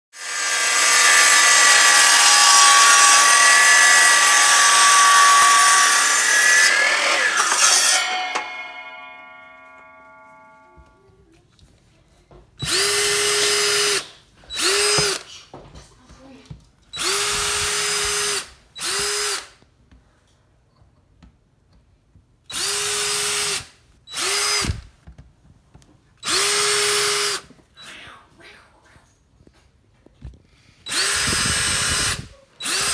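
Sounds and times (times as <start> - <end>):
power drill boring into wood: 0.2 - 8.9, 12.6 - 15.3, 17.0 - 19.6, 22.5 - 24.8, 26.2 - 27.5, 30.9 - 32.9
miter saw cutting log: 0.2 - 10.5
saw blade winding down: 0.2 - 10.9, 30.9 - 32.9.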